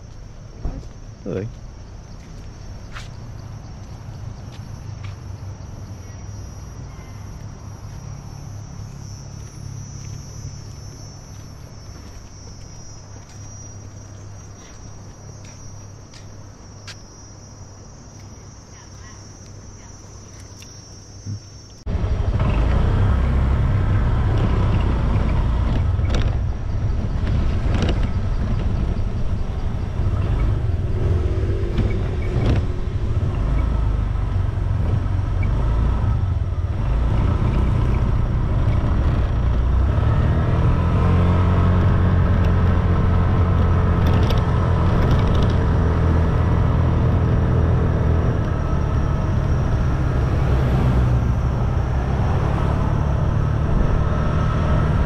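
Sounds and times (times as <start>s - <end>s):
wind rumble: 21.3s - 55.0s.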